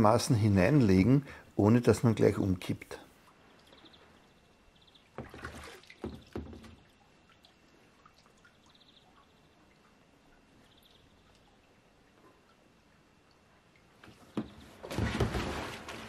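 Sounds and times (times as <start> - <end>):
faint water sounds: 0.0 - 16.0
paddle and kayak splashing: 5.1 - 6.9, 14.1 - 16.0.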